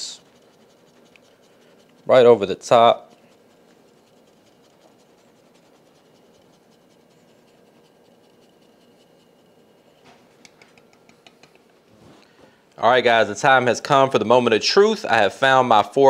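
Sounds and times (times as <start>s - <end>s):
grater ticks: 0.0s - 9.3s
cheese grating scratches: 0.0s - 10.0s.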